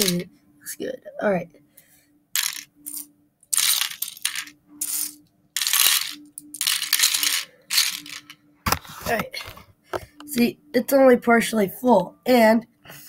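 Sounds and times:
plastic toy pieces clattering: 2.4s - 8.4s.

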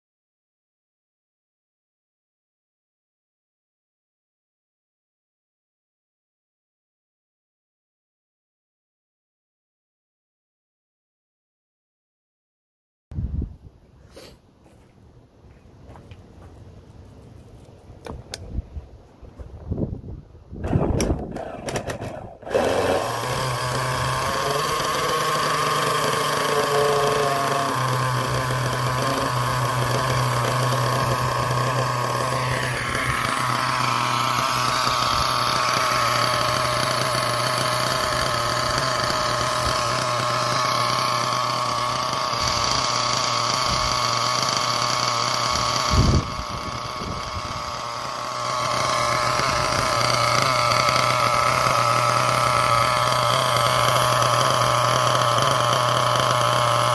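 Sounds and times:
nitro engine idling: 20.6s - 56.9s.

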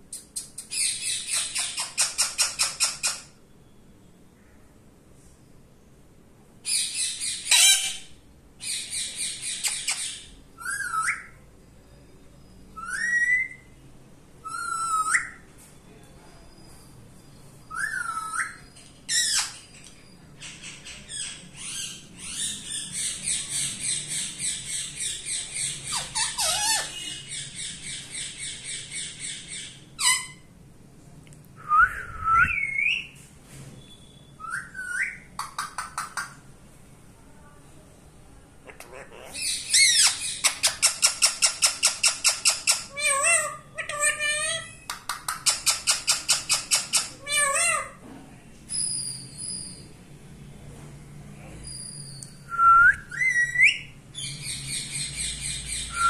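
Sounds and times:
parakeet screeching and whistling: 6.7s - 11.4s, 21.6s - 30.5s, 39.4s - 44.8s.

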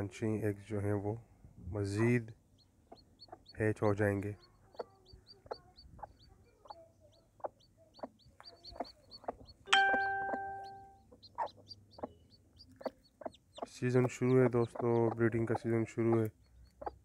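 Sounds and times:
chicks peeping: 1.8s - 17.0s
hen clucking softly: 2.9s - 3.6s, 4.3s - 9.6s, 11.1s - 17.0s
bell-like ding: 9.7s - 11.0s.

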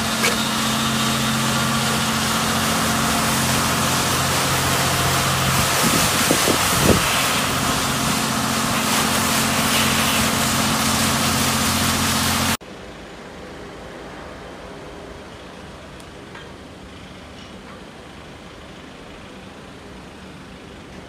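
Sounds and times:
high-pressure water spray hissing: 0.0s - 12.6s
machine hum: 0.0s - 12.6s.

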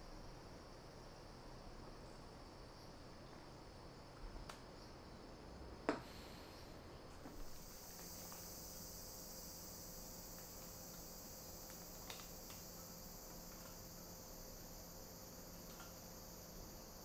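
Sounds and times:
high-pitched insect drone: 7.4s - 17.0s.

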